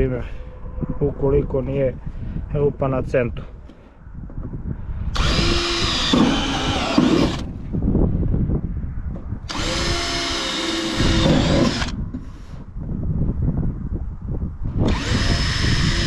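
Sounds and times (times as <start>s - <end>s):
drill whining through sheet metal: 5.1s - 7.5s, 9.5s - 12.0s, 14.8s - 16.0s.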